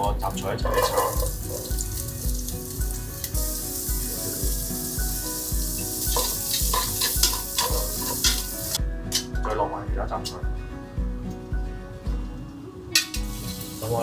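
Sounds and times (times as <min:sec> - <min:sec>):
onion sizzling in a pan: 0:00.0 - 0:09.3, 0:12.8 - 0:14.0
background music with a beat: 0:00.0 - 0:14.0
metal tongs scraping a pan: 0:00.6 - 0:01.3, 0:06.1 - 0:09.3, 0:12.9 - 0:13.8.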